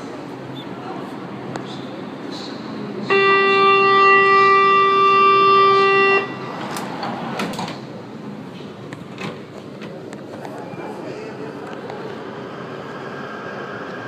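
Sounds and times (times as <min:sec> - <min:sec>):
long steady warning beep: 0:03.1 - 0:06.6.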